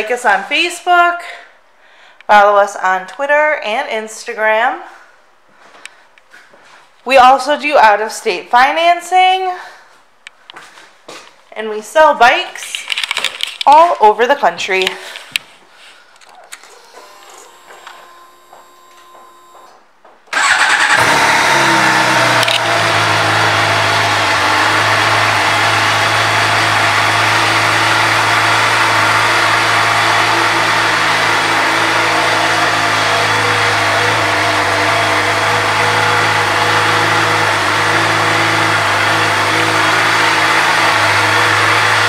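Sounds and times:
motorcycle engine starting and idling: 16.7s - 42.0s.

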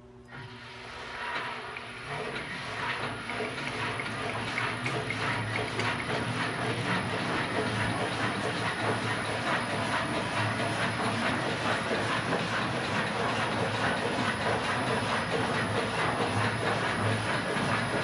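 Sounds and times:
low machine hum: 0.0s - 18.0s
lathe clattering rattle: 1.2s - 18.0s.

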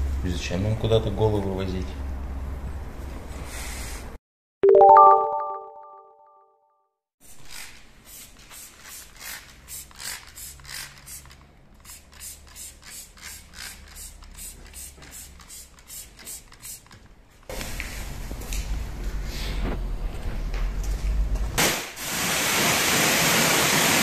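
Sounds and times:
spray bottle squirting: 7.4s - 17.0s.

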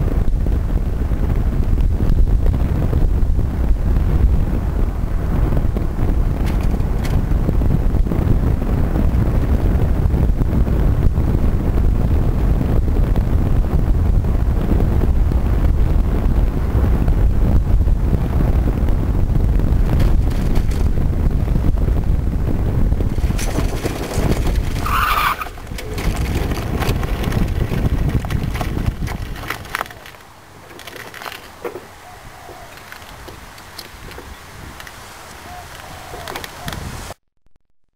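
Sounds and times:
small tyres rumbling on tarmac: 0.0s - 37.2s
wind over microphone: 0.0s - 37.2s
high tyre squeal: 24.8s - 26.0s.

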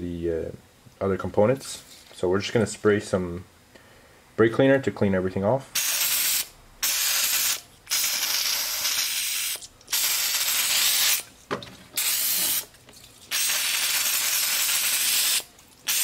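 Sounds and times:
aerosol can spraying: 5.8s - 11.3s, 12.0s - 12.7s, 13.3s - 16.0s.

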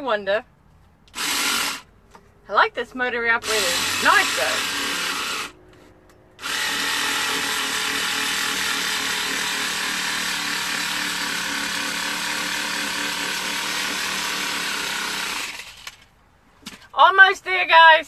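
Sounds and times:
small saw motor whine: 1.2s - 1.8s, 3.4s - 5.6s, 6.4s - 16.0s.

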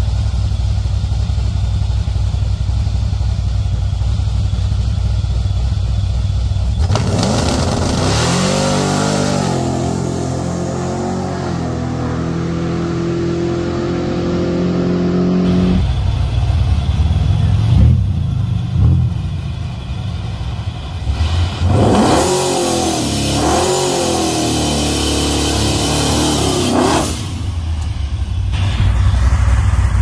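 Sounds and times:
engine at full throttle: 0.0s - 30.0s
engine low rumble revving: 0.0s - 30.0s.

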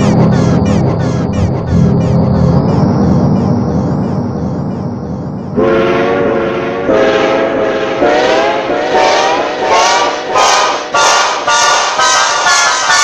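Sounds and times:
low rumbling: 0.0s - 8.8s
train horn blasts: 5.6s - 13.0s.

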